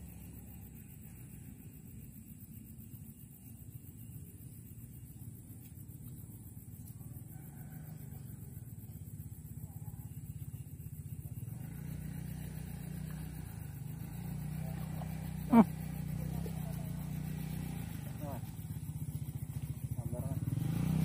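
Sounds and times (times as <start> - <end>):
engine humming: 10.2 - 21.0.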